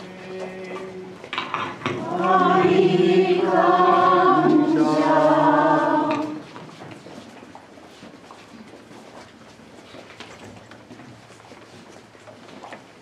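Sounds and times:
congregation chanting a response: 0:01.8 - 0:06.5.

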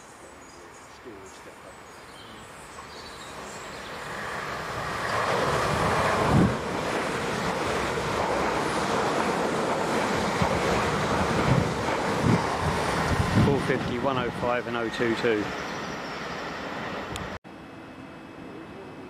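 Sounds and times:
train passing at speed: 0:02.6 - 0:19.0.

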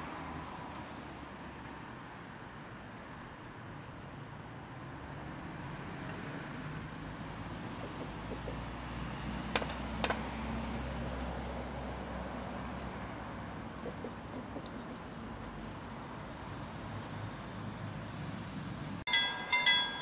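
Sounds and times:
vehicle engine rumbling: 0:05.5 - 0:19.8.

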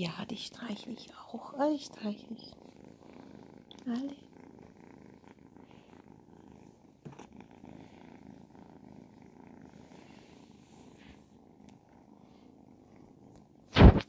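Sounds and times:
kitten purring: 0:00.0 - 0:14.0.

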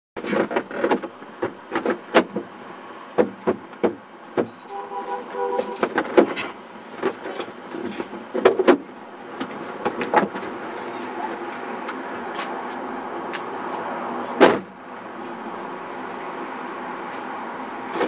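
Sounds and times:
street traffic: 0:00.2 - 0:18.0
short multi-pitch tone: 0:04.7 - 0:05.8.

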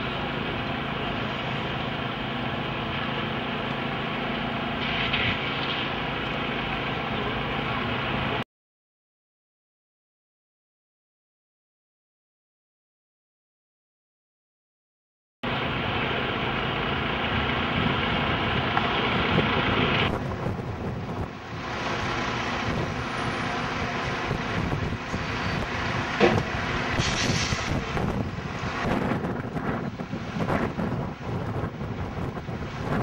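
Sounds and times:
steady rumbling noise: 0:00.0 - 0:08.4, 0:15.4 - 0:33.0
wind buffeting microphone: 0:17.4 - 0:33.0.

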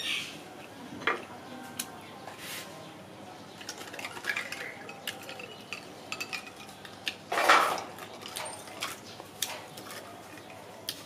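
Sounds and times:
ice clinking in glass: 0:03.6 - 0:06.9.

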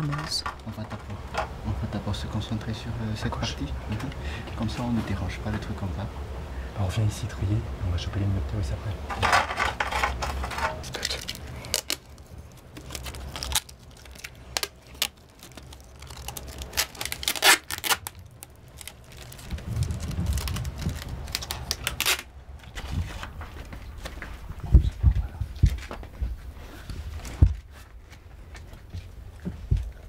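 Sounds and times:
low rumble: 0:18.0 - 0:26.4.

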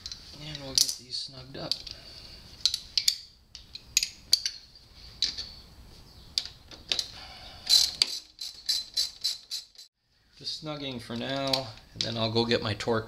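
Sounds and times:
wrench clicking on metal bolts: 0:02.6 - 0:05.5
wrench rasp: 0:07.6 - 0:09.9.

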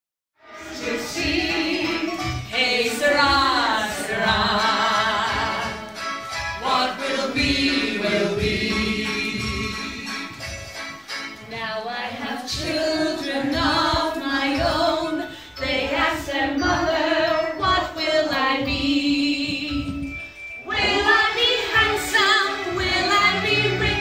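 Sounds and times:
group singing along: 0:00.4 - 0:10.4, 0:11.5 - 0:19.9, 0:20.6 - 0:24.0
backing music: 0:00.4 - 0:24.0
woman singing pop song: 0:11.5 - 0:20.1.

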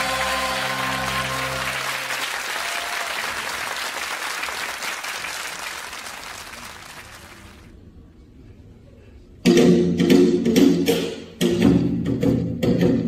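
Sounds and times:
applause: 0:00.0 - 0:07.7.

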